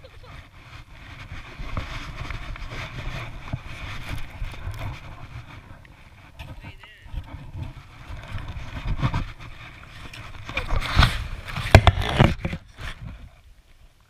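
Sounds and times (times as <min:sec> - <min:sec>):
plastic shovel scraping snow: 0:07.4 - 0:13.1.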